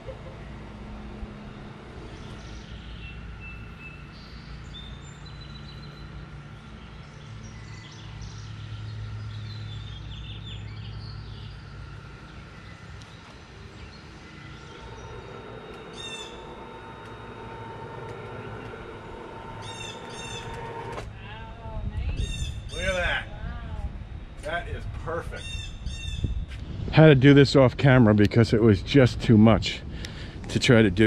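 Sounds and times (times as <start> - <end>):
electric motor humming: 0.0 - 10.2, 10.9 - 25.2
birds chirping: 0.0 - 21.0, 21.6 - 23.3, 25.2 - 26.5.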